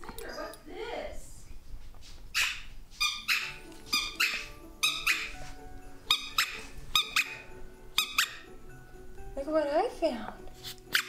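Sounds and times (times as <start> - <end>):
background music with steady beat: 3.2 - 11.0.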